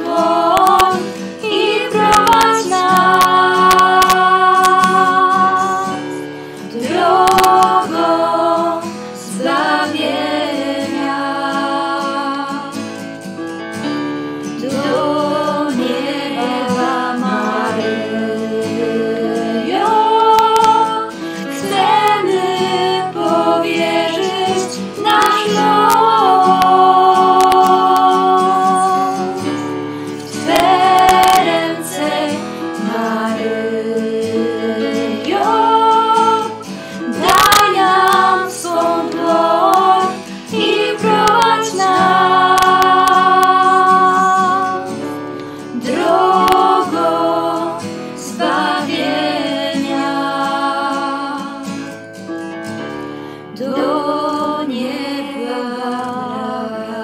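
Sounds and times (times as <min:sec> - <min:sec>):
young women singing together: 0:00.0 - 0:13.1, 0:14.6 - 0:52.0, 0:53.5 - 0:57.0.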